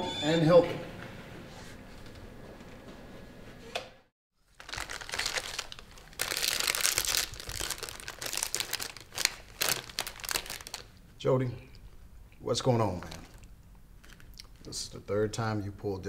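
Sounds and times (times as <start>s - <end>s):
plastic chip bag crinkling: 4.4s - 11.0s, 12.9s - 14.6s.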